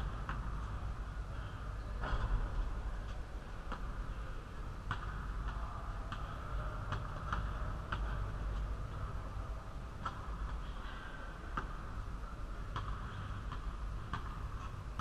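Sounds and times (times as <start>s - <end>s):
basketball bouncing on gym floor: 0.0s - 0.6s, 4.8s - 8.3s, 10.0s - 10.6s, 11.5s - 11.9s, 12.7s - 15.0s
background hum: 0.0s - 15.0s.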